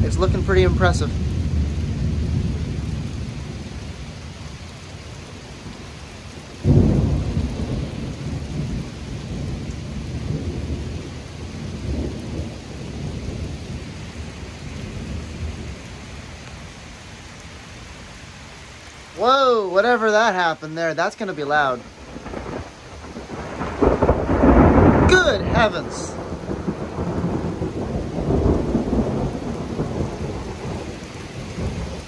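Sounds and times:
thunder rumbling: 0.0 - 16.7, 19.2 - 32.0
steady rain: 0.0 - 32.0
loud thunderclap: 6.6 - 13.9, 22.0 - 32.0.

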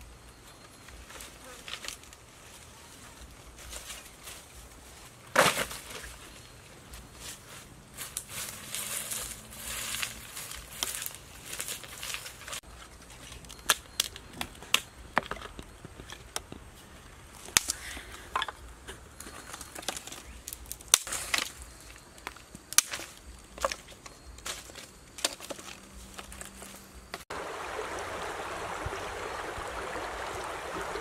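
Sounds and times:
dry leaves rustling: 0.8 - 14.2
wooden sticks knocking on stones: 13.2 - 16.7, 17.5 - 21.6, 22.2 - 27.2.

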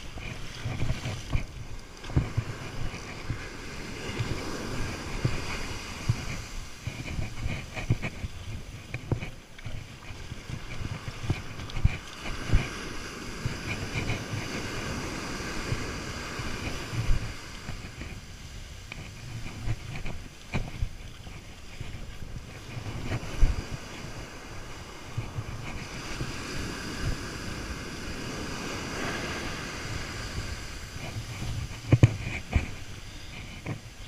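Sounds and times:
surf breaking on sand: 0.0 - 8.2, 10.1 - 20.8, 21.9 - 33.8
wind buffeting microphone: 0.0 - 34.0.

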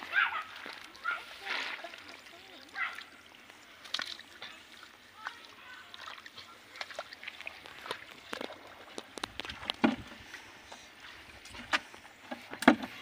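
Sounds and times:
hands splashing in muddy water: 0.0 - 10.3.

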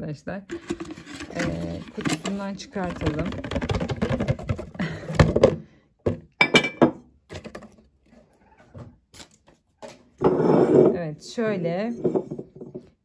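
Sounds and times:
cardboard rustling and scraping: 0.5 - 4.8
glass jar thunking on wooden table: 6.1 - 7.0.

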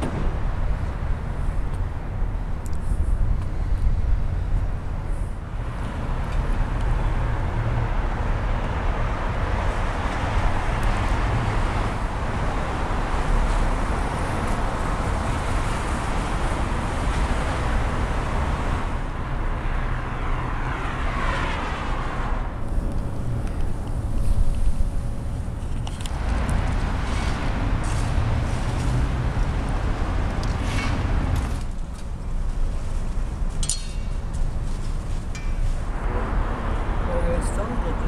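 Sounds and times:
passing traffic rumble: 0.0 - 38.0
vehicle passing by: 26.1 - 31.7, 35.8 - 38.0.

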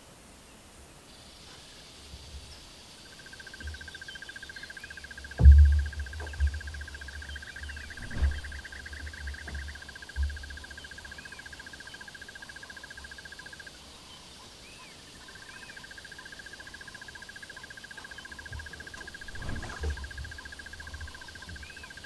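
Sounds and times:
low thump: 5.4 - 6.6, 7.7 - 8.9, 18.9 - 20.4.

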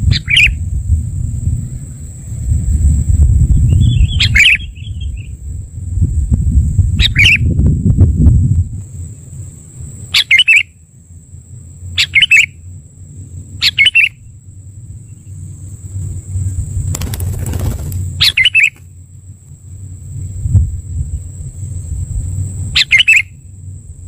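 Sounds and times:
low background rumble: 0.0 - 24.0
wings flapping: 16.7 - 18.9.

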